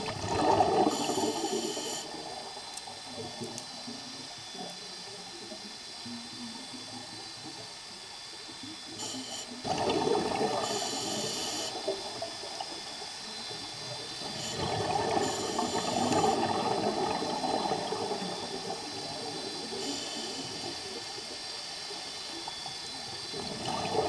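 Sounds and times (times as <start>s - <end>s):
exhaled bubbles rushing underwater: 0.0s - 3.6s, 9.6s - 21.6s, 22.5s - 24.0s.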